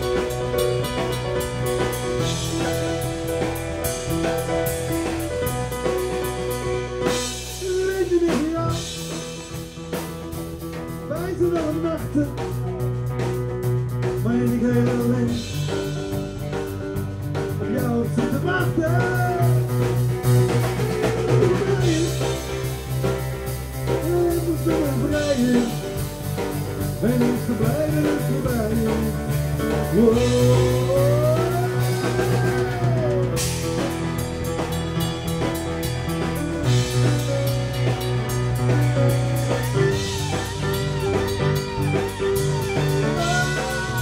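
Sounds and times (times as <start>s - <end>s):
drum kit: 0.0s - 44.0s
electric guitar: 0.0s - 44.0s
electric keyboard: 0.0s - 44.0s
man singing into a microphone: 7.5s - 9.2s, 11.1s - 12.6s, 14.1s - 16.2s, 17.5s - 19.8s, 20.6s - 22.8s, 23.9s - 26.1s, 26.8s - 33.4s, 43.0s - 44.0s.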